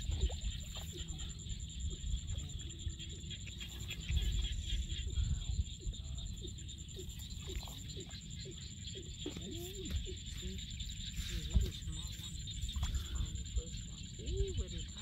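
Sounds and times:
small water splashes: 0:00.0 - 0:02.6, 0:06.9 - 0:13.5.

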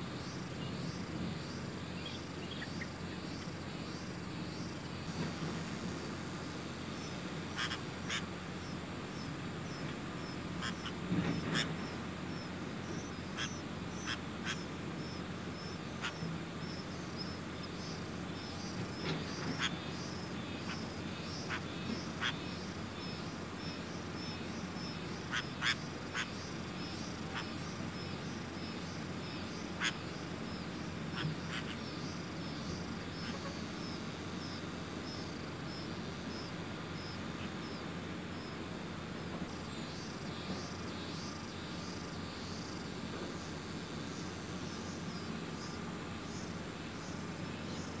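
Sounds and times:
insects chirping: 0:00.0 - 0:48.0
nestling birds begging calls: 0:06.6 - 0:37.7.

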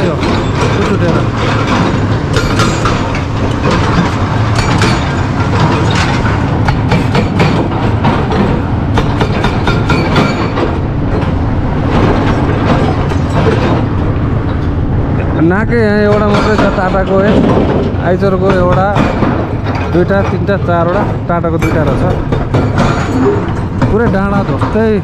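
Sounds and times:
hydraulic breaker hammering stone: 0:00.0 - 0:10.8, 0:15.8 - 0:25.0
diesel excavator engines: 0:00.0 - 0:25.0.

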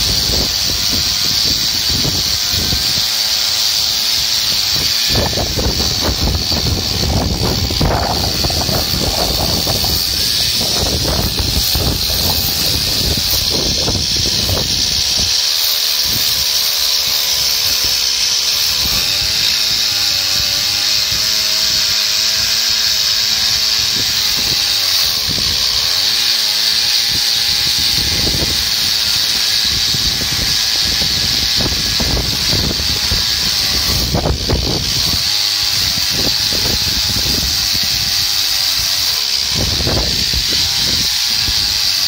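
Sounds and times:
chainsaw cutting through log: 0:00.0 - 0:42.0.

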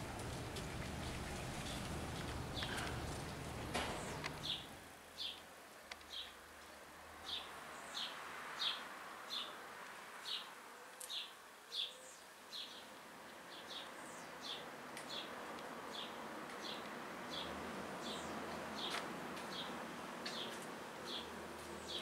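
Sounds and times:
hummingbird chirping: 0:02.0 - 0:05.4.

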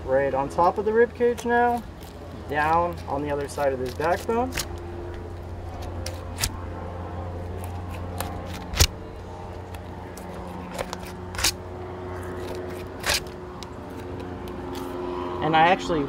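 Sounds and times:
steady low hum: 0:00.0 - 0:16.0
knife clicking and scraping on bone: 0:01.3 - 0:06.5.

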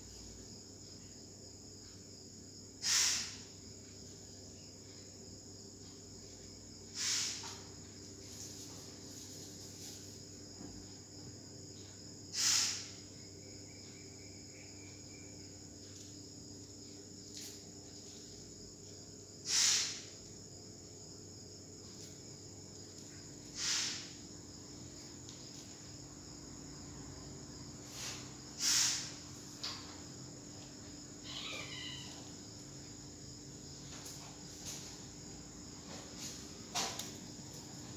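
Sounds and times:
crickets chirping: 0:00.0 - 0:37.9.

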